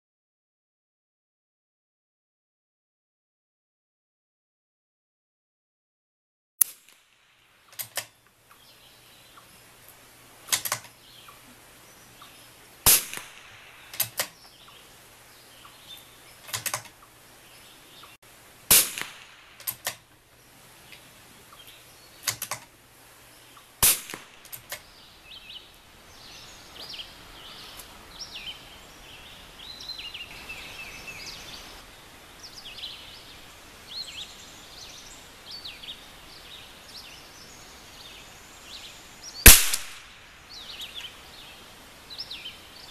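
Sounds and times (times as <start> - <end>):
birds chirping: 7.4 - 18.2, 18.8 - 42.9
rifle shots cracking: 12.9 - 14.2, 18.7 - 20.0, 23.8 - 24.8, 39.5 - 40.2.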